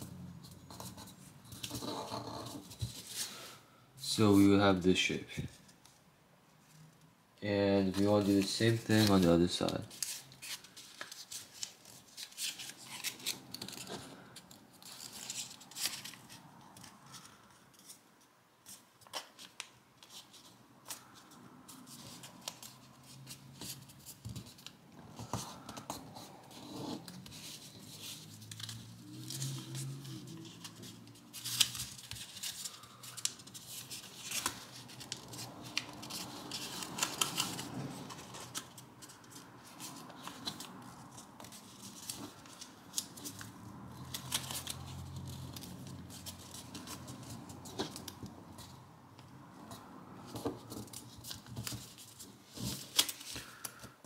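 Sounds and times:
paper being folded and creased: 0.0 - 3.5, 7.8 - 18.0, 18.6 - 48.8, 49.7 - 53.8.

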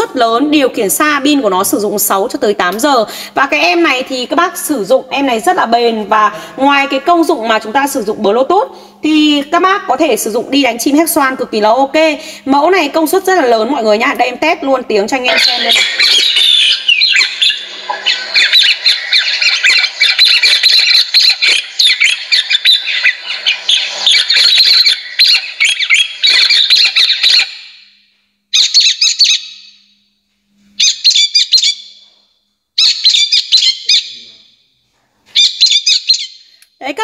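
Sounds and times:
recorded bird calls through speaker: 15.2 - 27.8, 28.5 - 29.8, 30.8 - 32.0, 32.8 - 34.6, 35.4 - 36.6.

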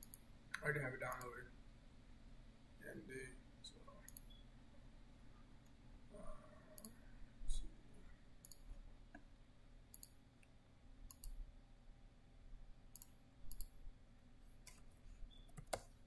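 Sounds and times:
computer mouse clicks: 0.0 - 1.3, 4.1 - 4.4, 6.8 - 7.0, 8.4 - 9.2, 9.9 - 10.2, 11.1 - 11.4, 12.9 - 13.8, 14.6 - 16.0.

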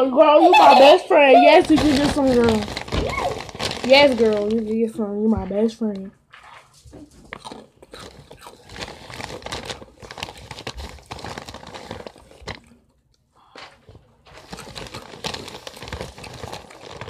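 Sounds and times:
plastic chip bag crinkling: 0.5 - 4.9, 7.3 - 12.8, 13.8 - 17.0.

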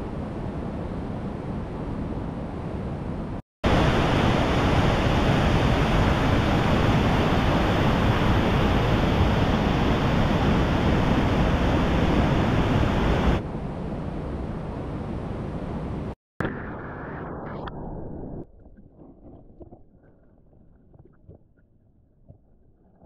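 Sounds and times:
creek and waterfall rushing: 3.7 - 13.4.

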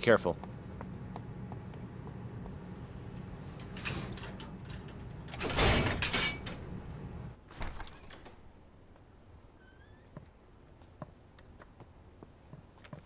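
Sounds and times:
low steady hum: 0.0 - 9.6
loud metal door clatter: 3.1 - 8.6.

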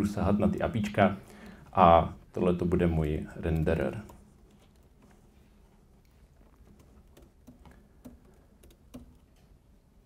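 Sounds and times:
faint keyboard keystrokes: 3.0 - 9.7.

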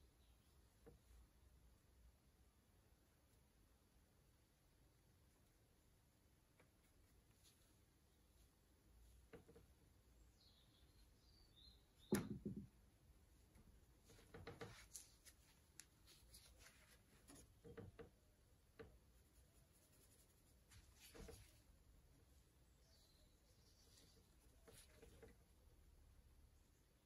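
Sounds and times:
soft scratches and taps: 6.4 - 9.9, 13.5 - 21.8, 23.6 - 25.6
paintbrush stroking and dabbing: 6.6 - 9.3, 14.0 - 17.8, 18.8 - 25.5.

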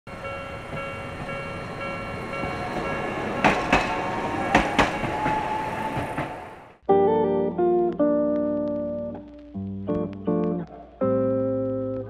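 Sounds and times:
streetcar whine and rumble: 0.1 - 6.8
wheels clacking over rail joints: 0.1 - 6.8.

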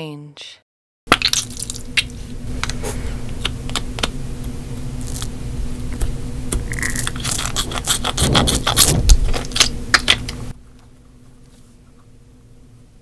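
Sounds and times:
squishy toy crackling and scraping: 6.7 - 9.7.

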